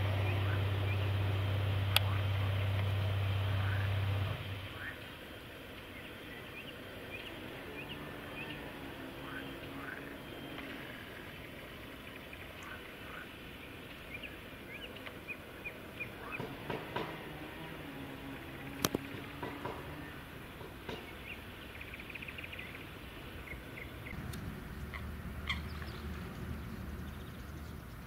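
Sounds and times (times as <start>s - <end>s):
low rumble: 0.0s - 5.0s, 23.1s - 28.0s.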